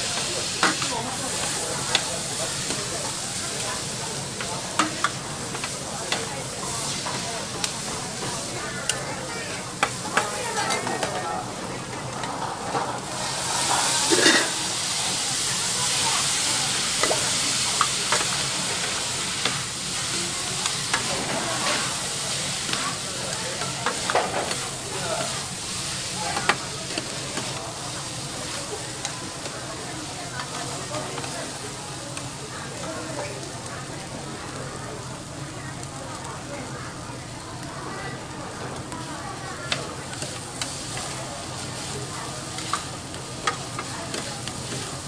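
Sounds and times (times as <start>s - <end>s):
noodles sizzling on griddle: 0.0s - 45.0s
metal spatulas scraping and clacking: 14.1s - 14.6s.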